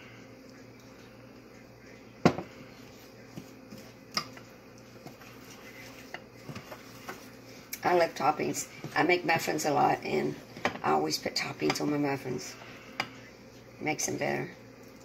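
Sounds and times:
steady low hum: 0:00.0 - 0:15.0
spoon stirring in ceramic bowl: 0:02.7 - 0:07.4.

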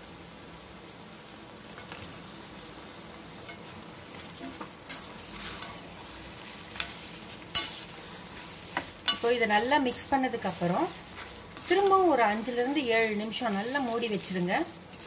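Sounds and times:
masala sizzling in a pan: 0:00.0 - 0:15.0
ladle stirring: 0:04.3 - 0:15.0.

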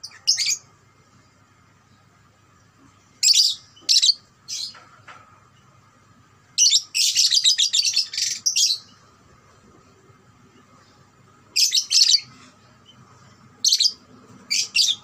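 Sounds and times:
lovebird chattering trill: 0:11.6 - 0:12.3.

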